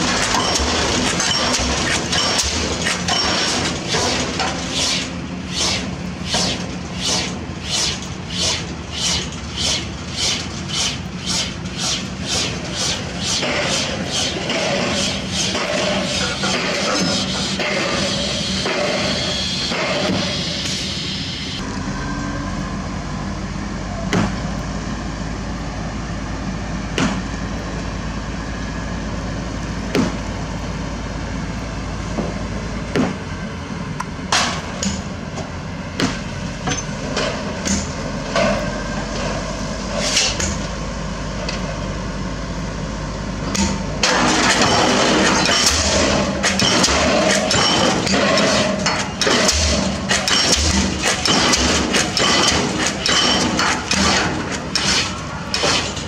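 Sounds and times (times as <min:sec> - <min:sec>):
pile hammer blows: 0:00.0 - 0:21.0, 0:29.9 - 0:30.4, 0:32.2 - 0:33.3, 0:43.5 - 0:56.0
crane engine running: 0:00.0 - 0:56.0
sharp metal knocks: 0:43.5 - 0:56.0.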